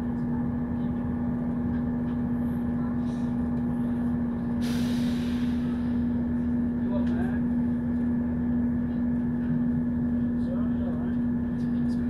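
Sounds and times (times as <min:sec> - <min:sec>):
train rumble and drone: 0:00.0 - 0:12.0
hiss: 0:04.6 - 0:05.8.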